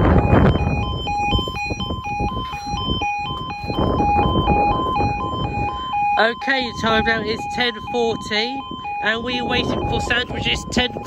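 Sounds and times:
two-tone level crossing alarm: 0:00.0 - 0:11.0.

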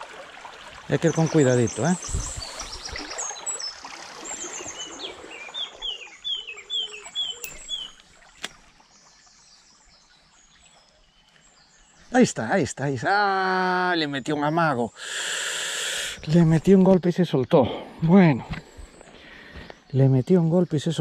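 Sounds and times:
stream trickling: 0:00.0 - 0:21.0
wading through branches: 0:00.8 - 0:12.2
small bird singing: 0:01.1 - 0:08.0
sharp click: 0:07.4 - 0:08.6.

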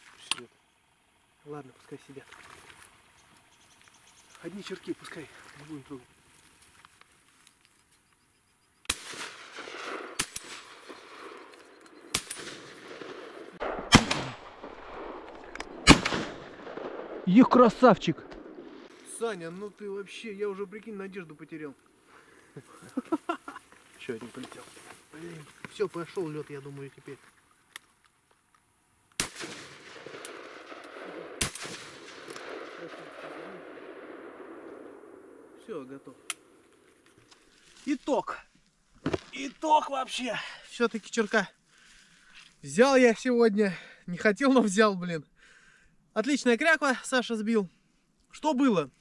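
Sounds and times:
shotgun shots with echo: 0:08.9 - 0:11.5, 0:12.1 - 0:17.4, 0:29.2 - 0:35.5.

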